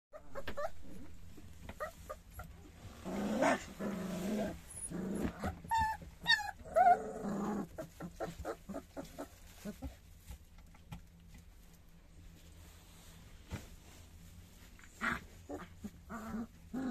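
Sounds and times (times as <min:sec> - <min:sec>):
puppies whimpering: 0:04.5 - 0:07.1
rustling in straw bedding: 0:12.1 - 0:16.9.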